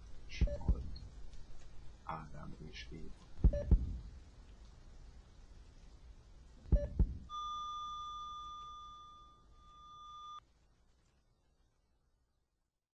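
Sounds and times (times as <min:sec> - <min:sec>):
double heartbeat thump: 0:00.3 - 0:01.0, 0:03.4 - 0:04.1, 0:06.7 - 0:07.3
heart monitor flatline beep: 0:00.4 - 0:00.8, 0:03.5 - 0:03.9, 0:06.7 - 0:10.4.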